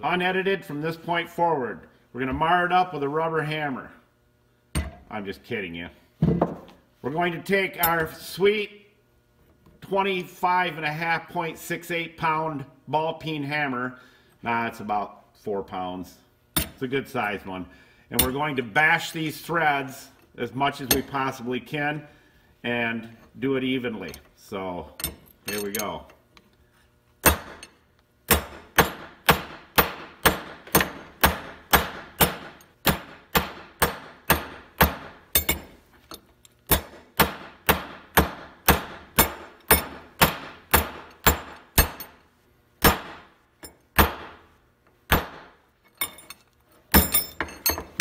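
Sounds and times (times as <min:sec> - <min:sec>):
hammer pounding metal bolts: 0:04.8 - 0:05.0, 0:25.0 - 0:26.0, 0:27.2 - 0:42.2, 0:42.8 - 0:44.4, 0:45.1 - 0:48.0.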